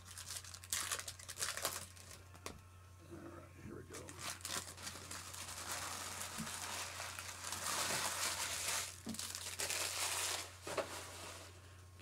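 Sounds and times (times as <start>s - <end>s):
card pack wrappers crinkling: 0.0s - 2.5s, 3.9s - 10.8s.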